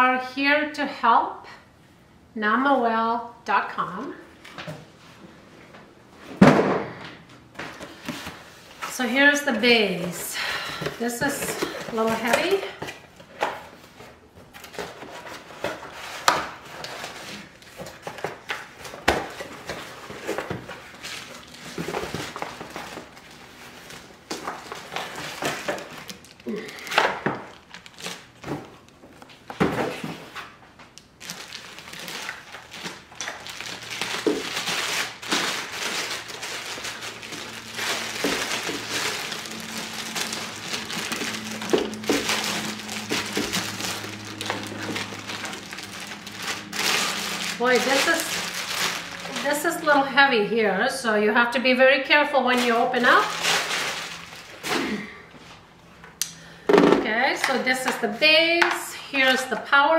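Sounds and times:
plastic bag crinkling: 14.5s - 29.5s, 31.0s - 50.2s, 52.5s - 55.2s.

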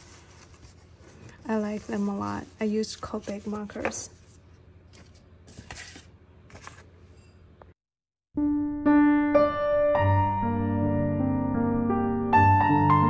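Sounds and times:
paper card rustling: 0.0s - 7.0s
piano music: 8.3s - 13.0s.

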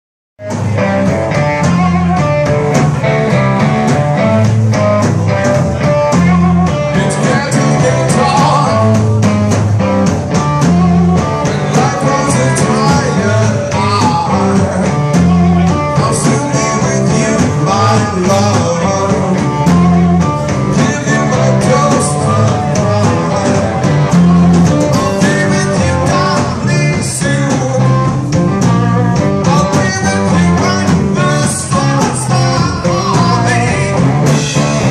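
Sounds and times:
drum kit: 0.4s - 34.9s
electric guitars: 0.4s - 34.9s
person singing into microphone: 5.8s - 9.4s, 11.2s - 34.9s.

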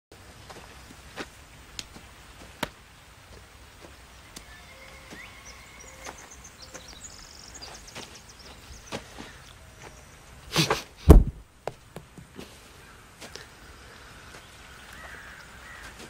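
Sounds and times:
bird chirps and trills: 4.1s - 10.3s
baseball hitting mattress: 11.1s - 11.4s.

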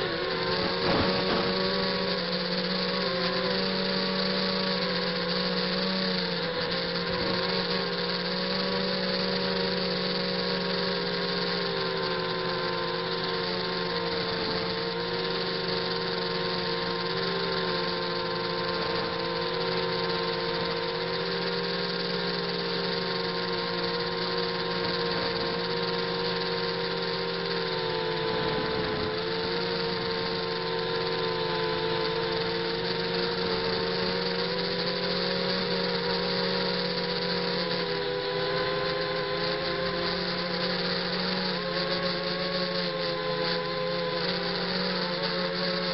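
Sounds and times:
drone motors buzzing whine: 0.0s - 45.9s.

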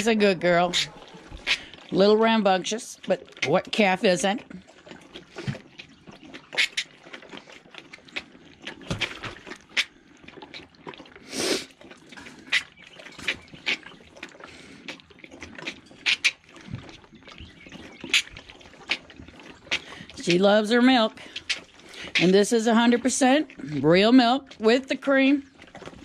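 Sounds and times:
calf sucking from a bottle: 0.7s - 2.0s, 4.4s - 20.3s, 21.1s - 23.8s.

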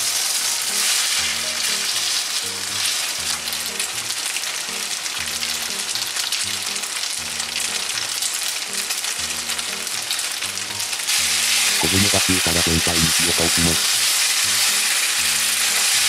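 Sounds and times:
meat sizzling in a frying pan: 0.0s - 16.0s
music with repeating bass: 1.2s - 1.8s, 2.6s - 4.1s, 5.2s - 5.9s, 6.5s - 8.1s, 9.2s - 13.8s, 14.5s - 15.8s.

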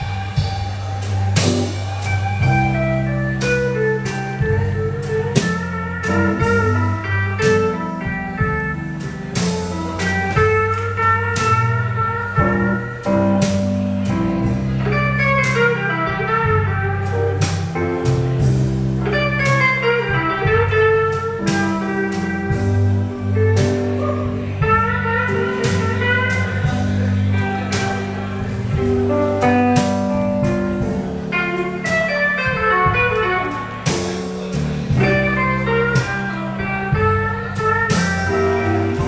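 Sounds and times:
drum and cymbal hits: 0.0s - 39.0s
electric guitar bending notes: 0.0s - 39.0s
low bass notes: 0.0s - 39.0s.

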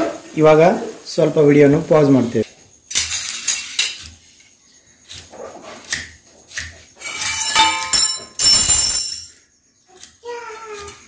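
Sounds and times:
metal spoon scraping steel pan: 2.9s - 4.4s, 5.0s - 8.7s
ringing metal clatter: 7.1s - 9.4s.

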